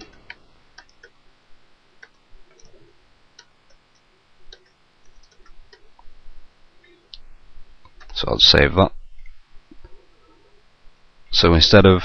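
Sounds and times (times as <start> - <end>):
keyboard keys clicking: 3.4 - 5.9.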